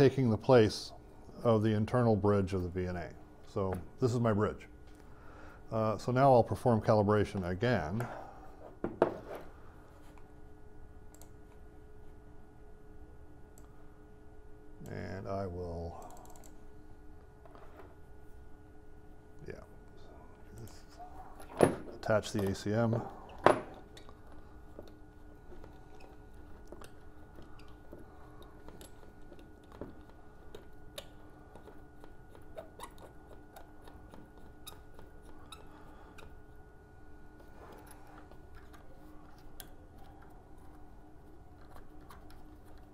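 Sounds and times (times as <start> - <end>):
faint steady hum: 0.0 - 42.9.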